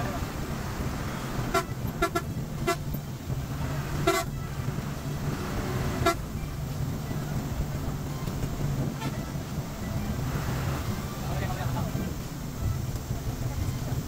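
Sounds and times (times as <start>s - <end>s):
bus horn toots: 0.0s - 11.1s
bus engine drone: 0.0s - 14.0s.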